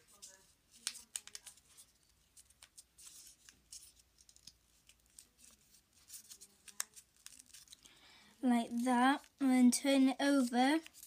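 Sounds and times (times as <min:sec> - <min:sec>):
paper crinkling as folded: 0:00.0 - 0:07.8, 0:10.3 - 0:11.0.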